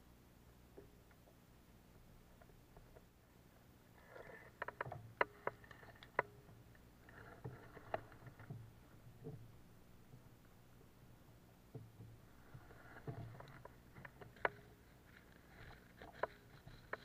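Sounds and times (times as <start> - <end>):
gear knocking and rustling: 4.5 - 17.0.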